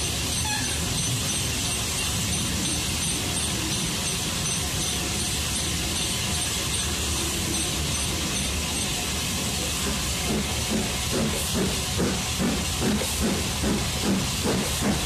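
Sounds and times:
steam train running rumble: 0:00.0 - 0:15.0
high squeak: 0:00.3 - 0:01.4.

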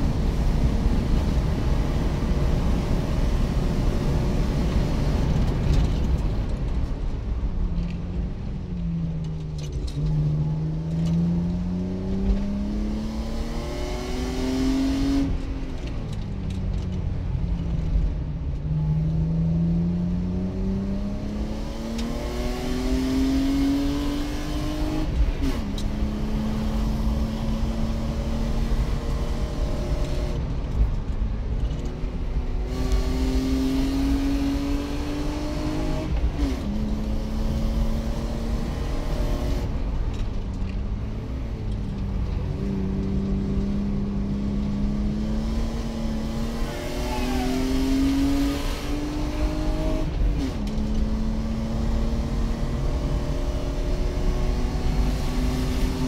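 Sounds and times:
tyre and road noise: 0:00.0 - 0:56.0
car engine revving through gears: 0:09.3 - 0:16.9, 0:18.8 - 0:30.7, 0:31.6 - 0:56.0.

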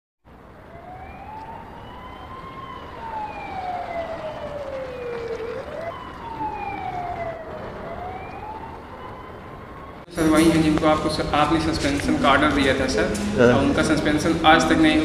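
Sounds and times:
police siren wailing: 0:00.3 - 0:11.8.

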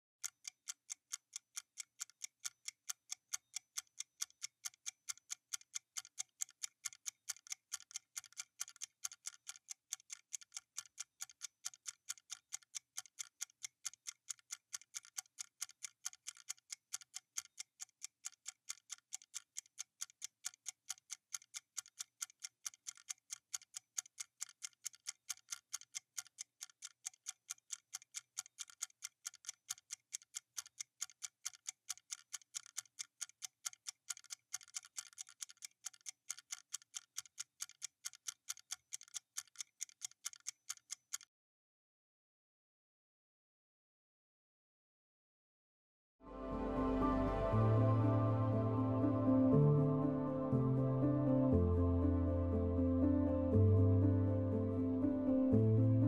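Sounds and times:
stopwatch ticking: 0:00.2 - 0:41.3.

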